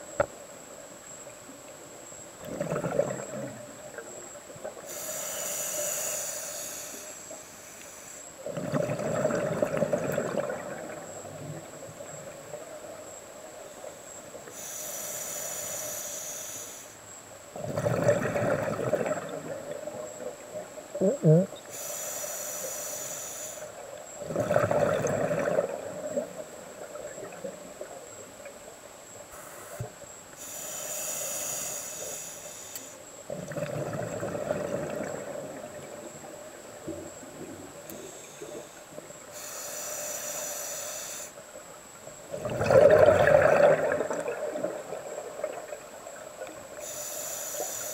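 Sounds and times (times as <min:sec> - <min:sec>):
bubbling underwater exhalation: 0:02.4 - 0:03.7, 0:08.4 - 0:11.0, 0:17.6 - 0:19.9, 0:21.0 - 0:21.6, 0:24.2 - 0:26.2, 0:33.3 - 0:36.0, 0:42.3 - 0:45.7
regulator hissing inhalation: 0:04.9 - 0:08.3, 0:14.5 - 0:17.0, 0:21.7 - 0:23.8, 0:29.4 - 0:33.0, 0:37.9 - 0:41.4, 0:46.8 - 0:47.9.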